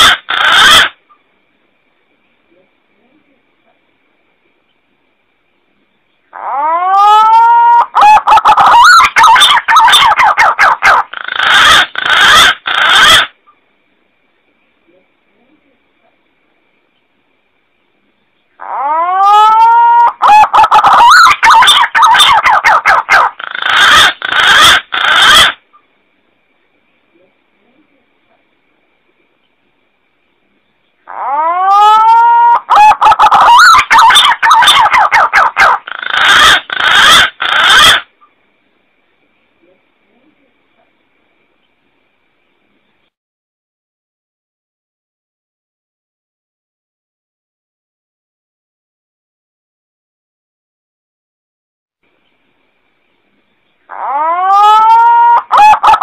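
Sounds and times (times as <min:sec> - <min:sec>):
pigeon calling: 0:00.0 - 0:01.0, 0:06.3 - 0:13.4, 0:18.6 - 0:25.6, 0:31.0 - 0:38.1, 0:53.9 - 0:56.0.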